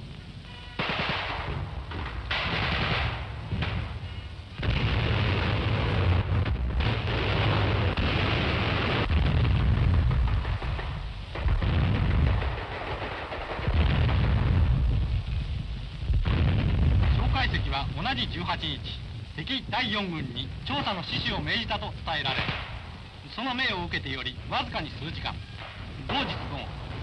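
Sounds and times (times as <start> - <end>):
sharp cracks: 0.8 - 4.0, 4.6 - 19.4, 20.6 - 23.8, 25.2 - 27.0
gunfire and explosions: 0.8 - 15.1, 20.7 - 23.8, 24.6 - 27.0.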